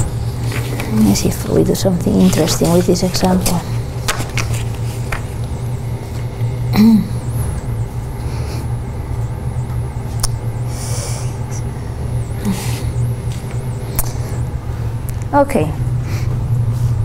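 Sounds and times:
low room hum: 0.0 - 17.0.

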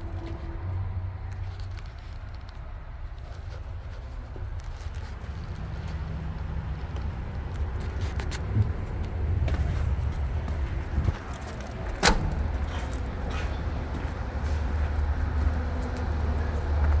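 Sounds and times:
truck cab door shutting: 11.9 - 12.6.

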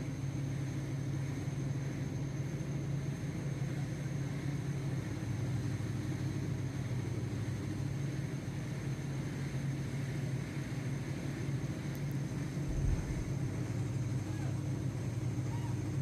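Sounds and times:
engine rumbling: 0.0 - 16.0.

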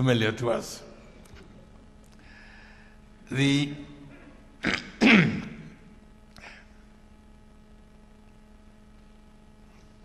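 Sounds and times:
man coughing: 4.2 - 5.8.

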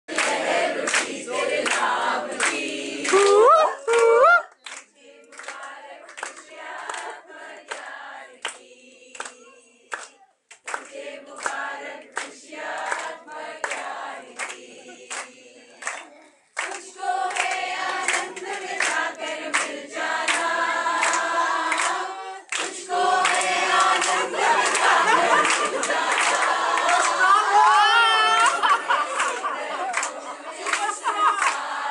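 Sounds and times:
group singing in unison: 0.1 - 3.5, 4.8 - 31.9
rhythmic clapping: 0.1 - 27.8, 28.4 - 31.9.

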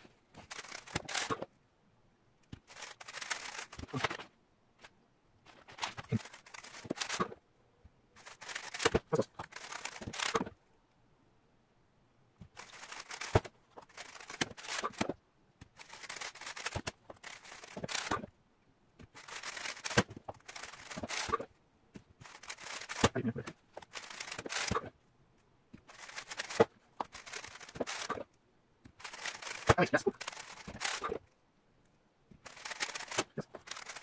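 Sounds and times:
plastic puzzle cube clicking: 0.4 - 1.5, 2.4 - 4.2, 5.6 - 7.4, 8.2 - 10.6, 12.5 - 18.3, 19.1 - 21.5, 22.2 - 24.9, 25.8 - 31.3, 32.4 - 34.0.

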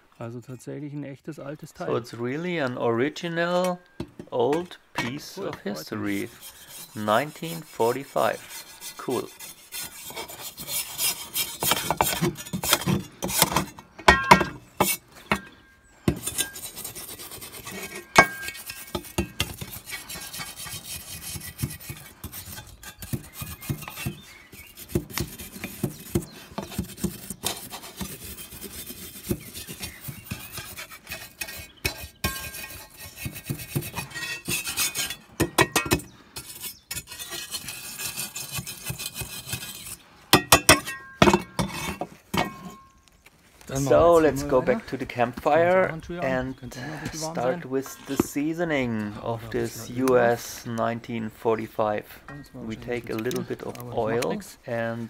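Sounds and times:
steel brush scraping metal blade: 5.7 - 15.5, 16.1 - 42.9
sharp knocks on metal: 12.8 - 15.5.

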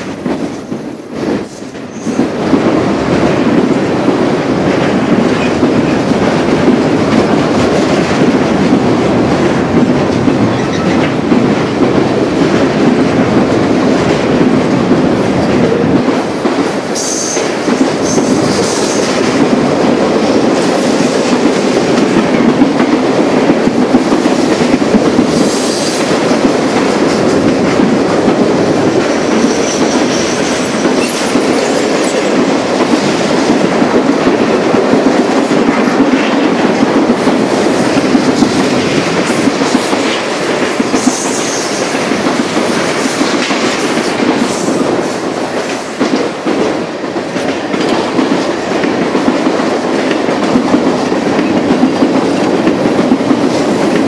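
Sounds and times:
train wheels squealing: 0.0 - 2.4, 29.3 - 32.2
train wheels rumbling on rails: 0.0 - 54.0.

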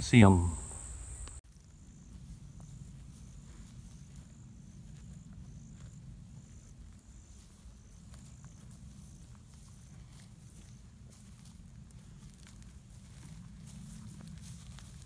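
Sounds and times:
insect chirping: 0.0 - 11.4.

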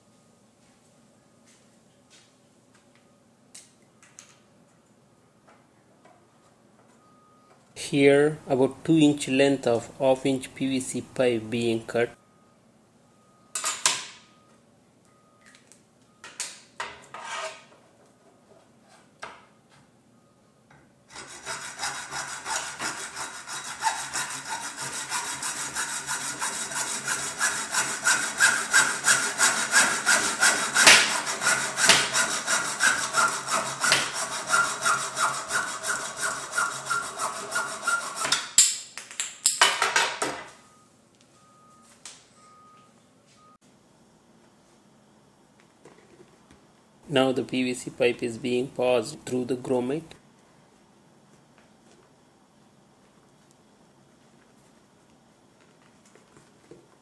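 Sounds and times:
hacksaw cutting plastic pipe: 21.1 - 38.7.

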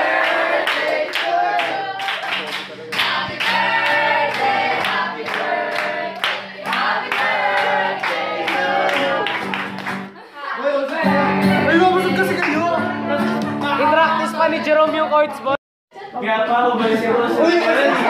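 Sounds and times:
group of people singing: 0.0 - 9.7
people clapping in time: 0.1 - 10.2.

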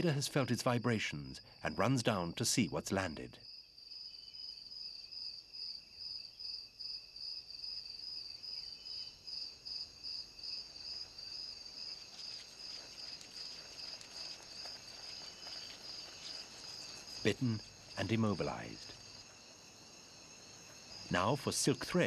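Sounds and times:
crickets chirping: 0.0 - 22.0
faint ticks and rustles: 10.4 - 22.0.

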